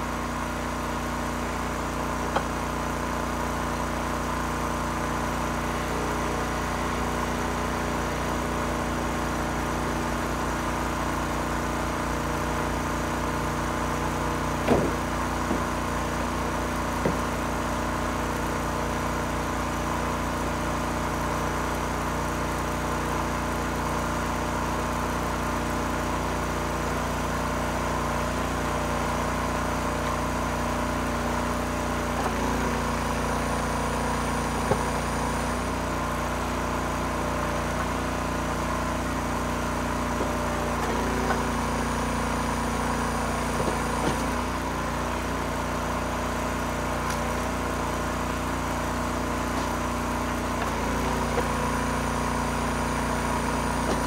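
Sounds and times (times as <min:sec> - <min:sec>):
engine running steadily: 0:00.0 - 0:54.0
sharp knocks: 0:14.6 - 0:15.7.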